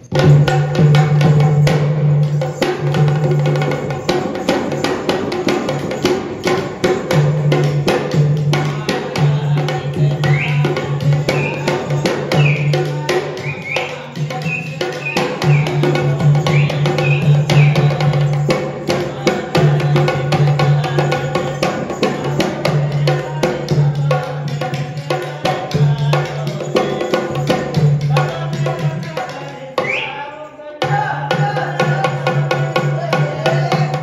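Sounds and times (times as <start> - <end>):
hand drum beating fast: 0.1 - 30.0, 30.8 - 34.0.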